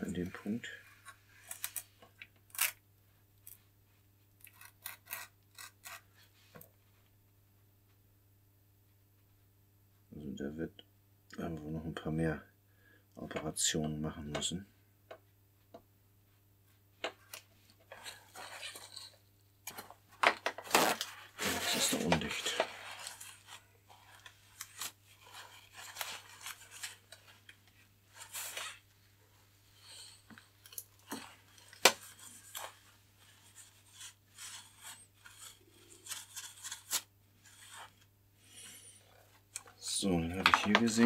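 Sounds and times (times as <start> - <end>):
gloved hands moving: 17.2 - 28.9
paper tissue rustling: 20.6 - 28.9.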